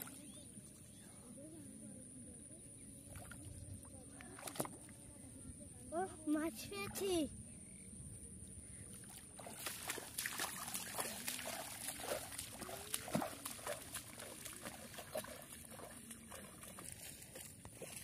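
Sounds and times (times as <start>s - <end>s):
bare feet splashing in mud: 4.1s - 4.9s, 8.9s - 18.0s.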